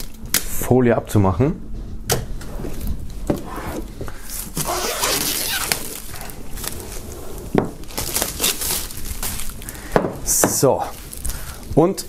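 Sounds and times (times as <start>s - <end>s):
plastic film crinkling: 4.2s - 9.9s, 10.6s - 11.8s.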